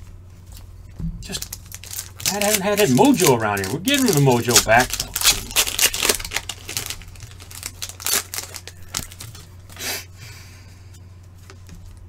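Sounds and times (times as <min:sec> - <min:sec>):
faint low hum: 0:00.0 - 0:12.0
card pack wrapper crinkling: 0:01.2 - 0:09.8.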